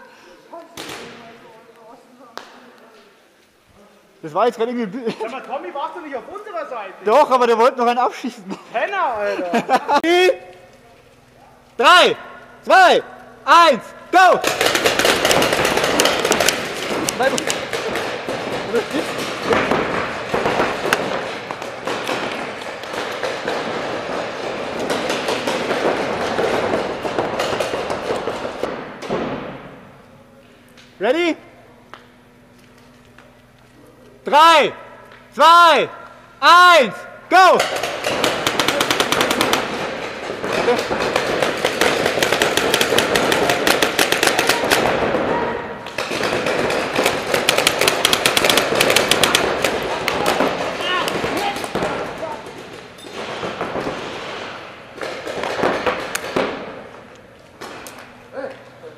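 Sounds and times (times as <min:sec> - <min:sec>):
paintball markers firing: 0:14.4 - 0:29.6, 0:37.6 - 0:58.1.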